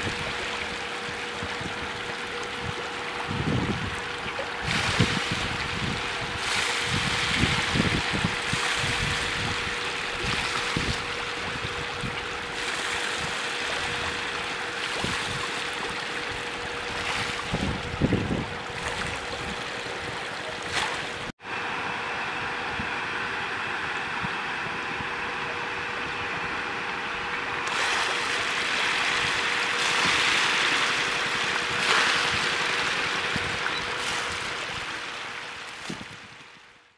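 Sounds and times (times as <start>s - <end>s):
wind buffeting microphone: 0.0s - 20.5s, 35.8s - 36.5s
steady hum: 0.0s - 36.9s
fish splashing at water surface: 4.0s - 21.3s, 27.6s - 36.1s.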